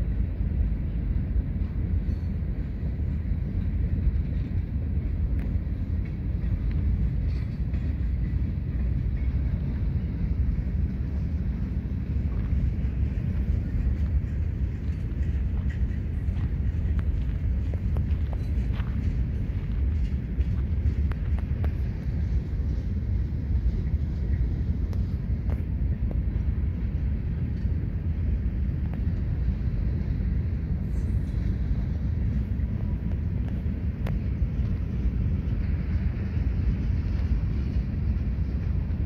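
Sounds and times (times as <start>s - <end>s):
diesel locomotive rumbling: 0.0s - 39.0s.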